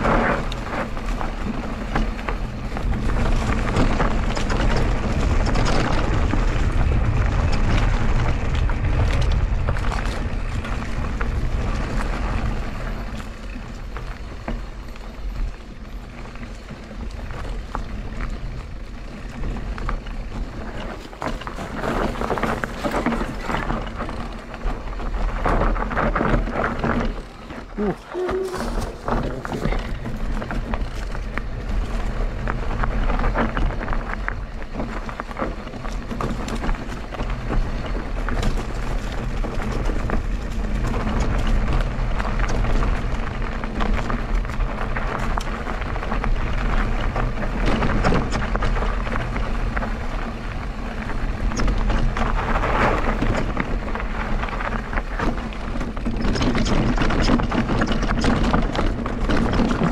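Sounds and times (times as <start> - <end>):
bike clicking and rattling: 0.0 - 59.9
tyres over dirt and stones: 0.0 - 59.9
wind rumble on microphone: 0.0 - 59.9.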